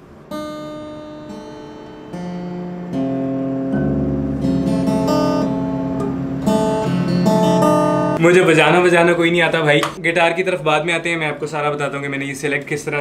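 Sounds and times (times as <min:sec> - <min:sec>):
acoustic guitar strummed: 0:00.0 - 0:08.2.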